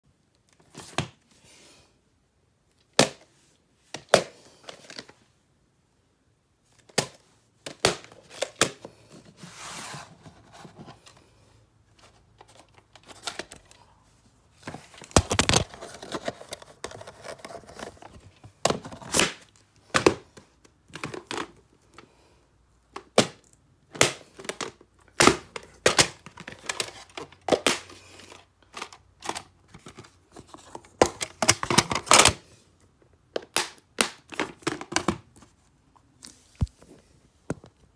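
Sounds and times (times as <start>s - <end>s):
plastic cases clattering: 14.6s - 21.7s, 22.9s - 32.4s, 33.4s - 35.4s
plastic cassette cases clicking: 23.0s - 27.9s, 28.6s - 32.4s.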